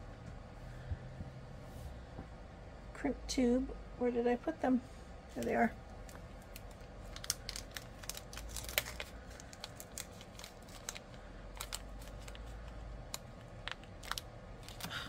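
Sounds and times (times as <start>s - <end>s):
plastic packet clicks and crinkles: 5.9s - 15.0s.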